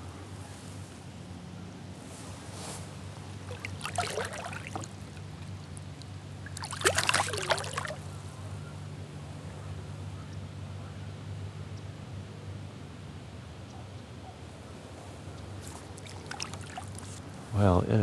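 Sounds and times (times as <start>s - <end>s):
low steady hum: 0.0s - 18.0s
water splashing: 3.4s - 8.1s, 15.8s - 17.2s.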